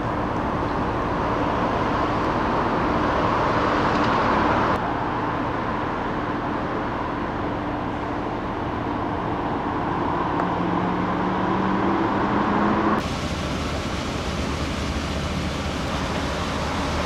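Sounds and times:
engines and traffic rumble: 0:00.0 - 0:17.0
bright hiss: 0:13.0 - 0:17.0
droning hum: 0:13.0 - 0:17.0.

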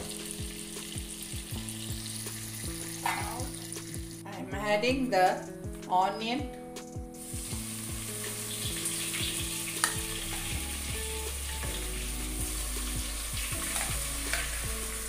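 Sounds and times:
onions sizzling in a pan: 0:00.0 - 0:04.2, 0:07.2 - 0:15.0.

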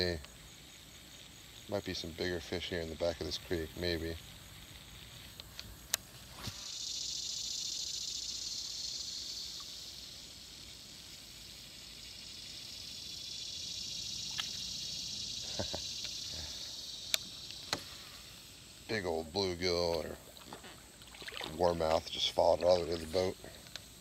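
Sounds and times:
insects buzzing: 0:00.0 - 0:24.0.

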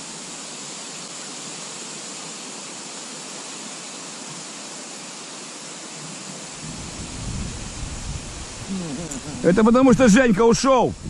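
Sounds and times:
water hissing: 0:00.0 - 0:11.0.

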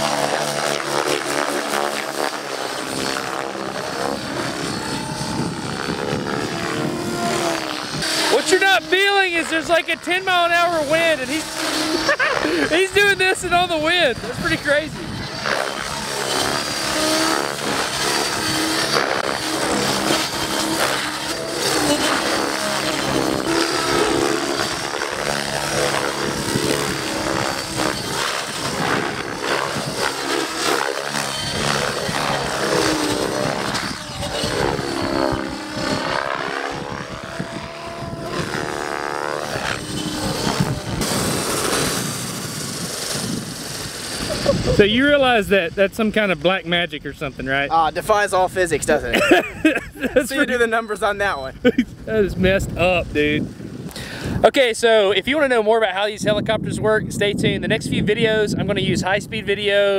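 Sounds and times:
model helicopter rotor whirring: 0:00.0 - 0:59.9.

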